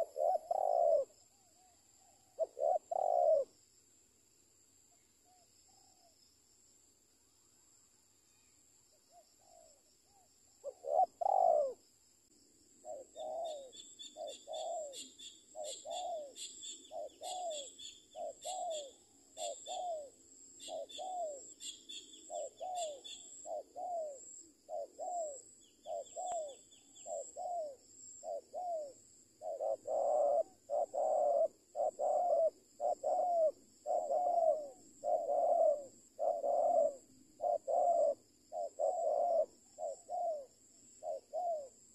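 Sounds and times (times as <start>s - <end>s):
small birds chirping: 0.0s - 3.5s, 12.8s - 41.7s
dove cooing: 0.0s - 3.6s, 9.1s - 11.8s, 12.8s - 41.9s
high insect drone: 0.0s - 41.9s.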